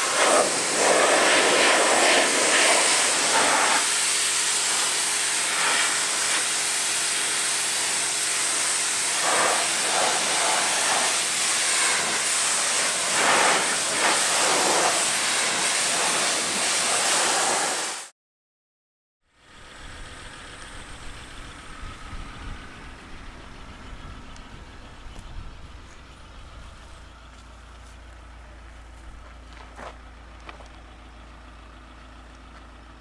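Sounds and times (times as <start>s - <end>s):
pressure washer jet hissing: 0.0s - 18.1s
motor hum: 19.3s - 33.0s.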